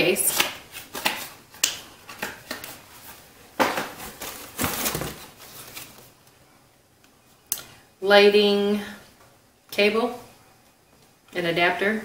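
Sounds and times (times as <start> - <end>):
items rustling in cardboard box: 3.9 - 6.2.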